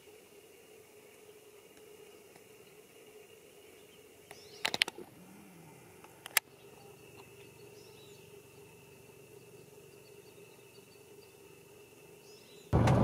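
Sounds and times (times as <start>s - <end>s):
faint background hum: 0.0s - 13.0s
sharp clicks: 4.3s - 5.0s.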